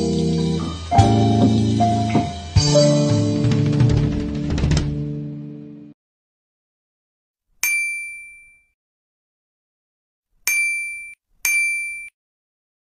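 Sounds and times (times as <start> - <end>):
bell-like ding: 7.6 - 8.7, 10.5 - 12.1.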